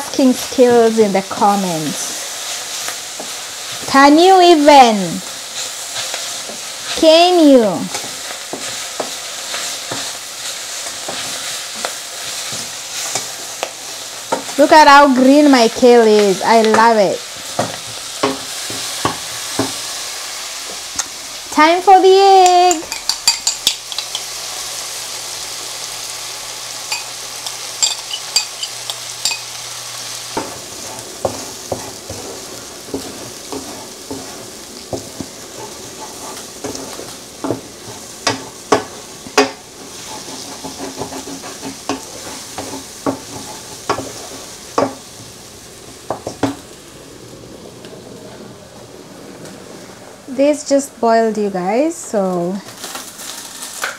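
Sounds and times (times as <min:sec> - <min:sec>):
kale sizzling in a frying pan: 0:00.0 - 0:53.9
spoon clicking against pan: 0:22.7 - 0:24.3.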